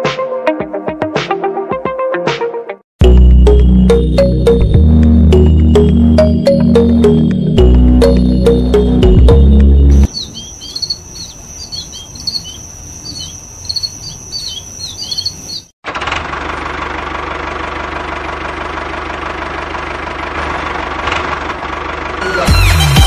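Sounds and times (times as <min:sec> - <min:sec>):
birds chirping: 0:07.6 - 0:15.7.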